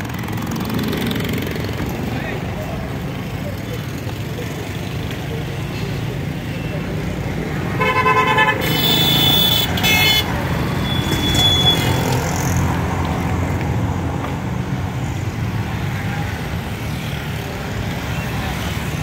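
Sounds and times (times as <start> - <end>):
rumble of passing traffic: 0.0 - 19.0
vehicle horn honking: 7.8 - 12.0.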